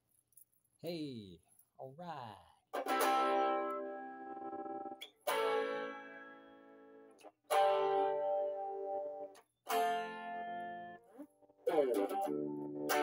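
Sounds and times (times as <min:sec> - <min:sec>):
electric guitar chords: 0:02.7 - 0:13.0.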